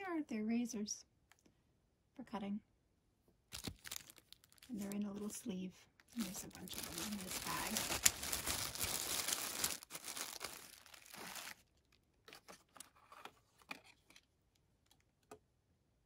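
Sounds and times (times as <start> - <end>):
plastic bag crinkling: 3.5 - 12.0
small items clicking and rustling: 6.0 - 15.0.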